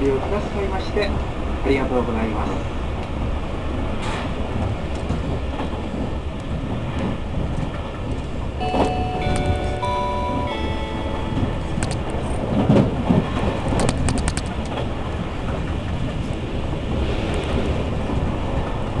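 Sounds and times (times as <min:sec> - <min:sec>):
train rumble: 0:00.0 - 0:19.0
wheels clicking over rail joints: 0:04.0 - 0:19.0.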